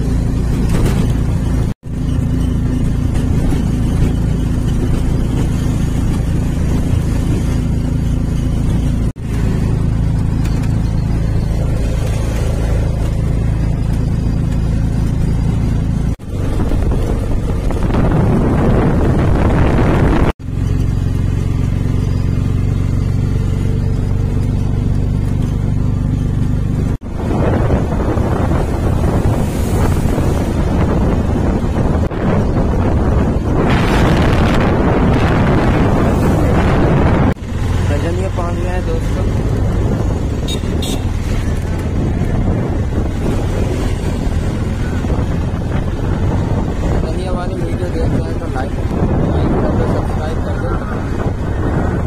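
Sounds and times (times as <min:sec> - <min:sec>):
vehicle engine and road noise: 0:00.0 - 0:52.0
loud rushing noise: 0:27.0 - 0:38.0.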